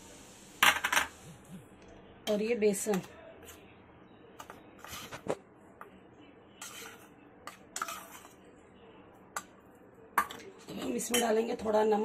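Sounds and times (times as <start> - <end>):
spoon scraping steel bowl: 4.8 - 5.4, 6.6 - 8.4.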